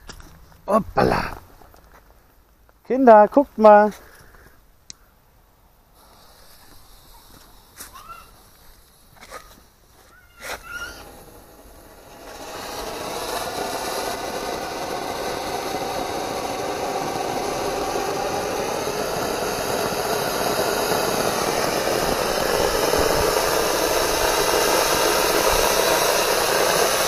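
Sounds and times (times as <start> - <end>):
firework fountain hissing: 5.8 - 27.0.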